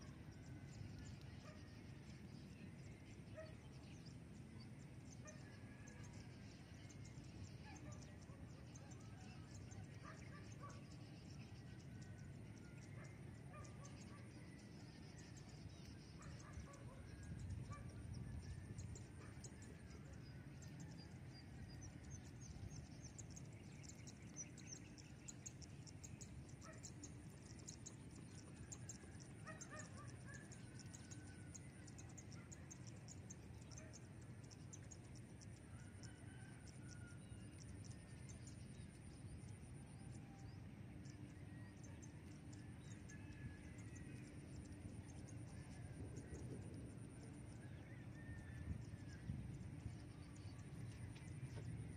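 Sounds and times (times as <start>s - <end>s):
low wind rumble: 44.8s - 51.9s.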